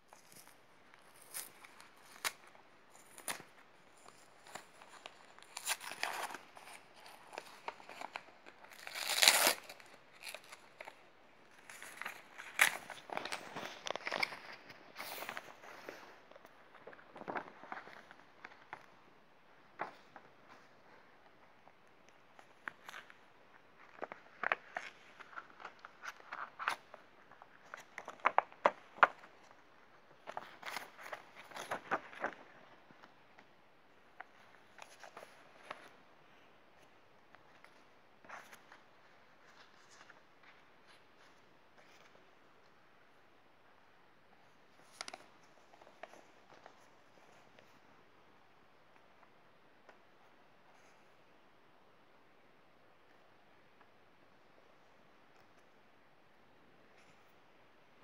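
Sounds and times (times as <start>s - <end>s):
plastic sleeve crinkling: 0.1s - 18.8s
paper rustling and crinkling: 0.1s - 21.1s, 22.1s - 33.5s, 34.1s - 42.8s, 44.7s - 47.9s
envelope tearing: 4.4s - 11.0s.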